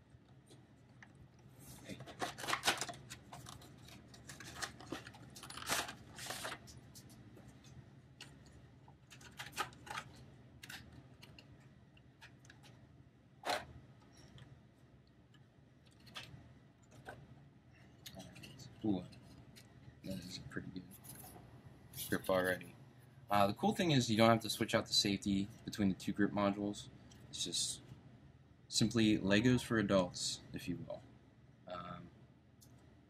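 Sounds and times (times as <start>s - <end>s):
packaging crinkling and rustling: 2.0s - 6.8s.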